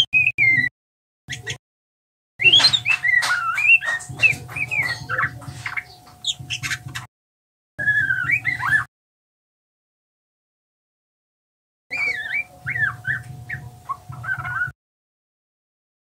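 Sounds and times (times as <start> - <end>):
bird singing varied chirps: 0.0 - 0.7, 2.4 - 7.1, 7.8 - 8.9, 11.9 - 14.8.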